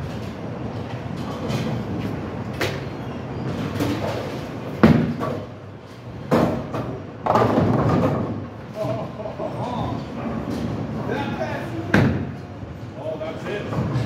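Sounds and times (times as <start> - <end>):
bowling pins crashing: 6.2 - 8.5.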